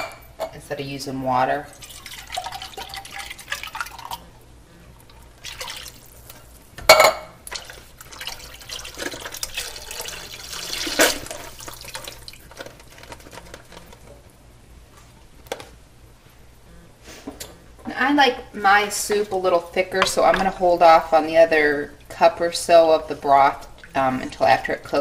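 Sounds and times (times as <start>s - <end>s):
water running and pouring: 1.7s - 4.3s, 5.0s - 6.7s, 7.4s - 13.5s.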